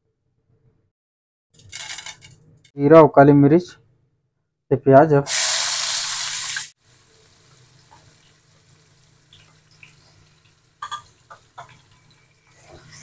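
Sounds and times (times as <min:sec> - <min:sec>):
onion sizzling in hot oil: 0:05.3 - 0:13.0.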